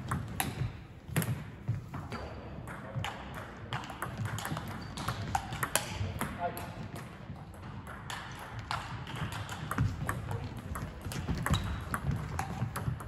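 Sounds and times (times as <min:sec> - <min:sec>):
ball bouncing on table: 0:00.0 - 0:13.0
table tennis ball clicking off paddles: 0:03.0 - 0:13.0.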